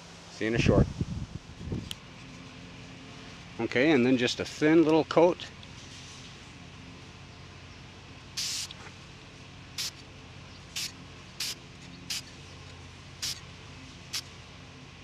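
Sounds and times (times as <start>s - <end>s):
aerosol spray paint hissing: 8.4s - 8.8s, 9.8s - 10.0s, 10.7s - 12.3s, 13.2s - 13.4s, 14.1s - 14.3s.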